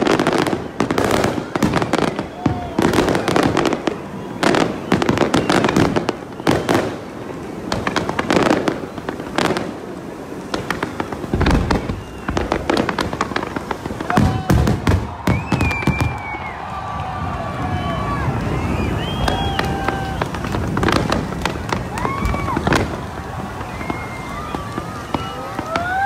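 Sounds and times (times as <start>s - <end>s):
firework shells bursting: 0.0s - 17.1s
deep firework booms: 0.0s - 26.0s.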